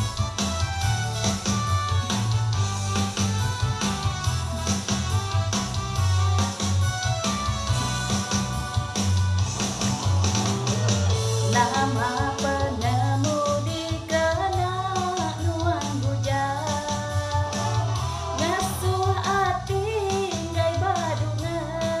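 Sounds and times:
karaoke backing track: 0.0 - 22.0
woman singing into microphone: 11.4 - 22.0.

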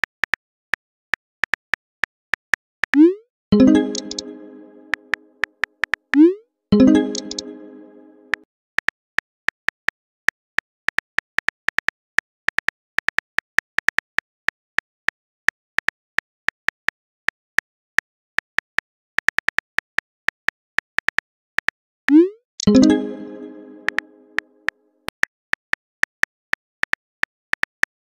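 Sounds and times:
pitched tone: 3.6 - 5.5, 6.8 - 8.4, 22.7 - 24.6.

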